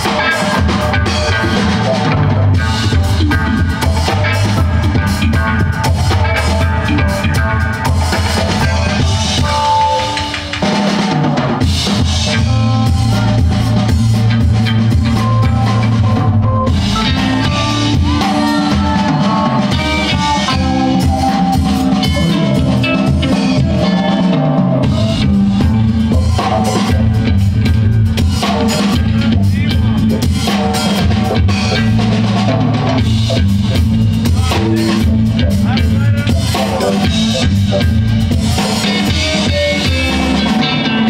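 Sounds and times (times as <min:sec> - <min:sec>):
bass guitar: 0:00.0 - 0:41.0
drum kit: 0:00.0 - 0:41.0
electric guitar: 0:00.0 - 0:41.0
keyboard: 0:00.0 - 0:41.0.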